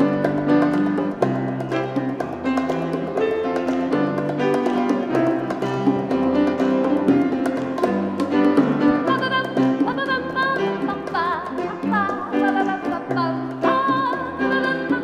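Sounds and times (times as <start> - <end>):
drums and percussion beat: 0.0 - 11.3
piano chords: 0.0 - 15.0.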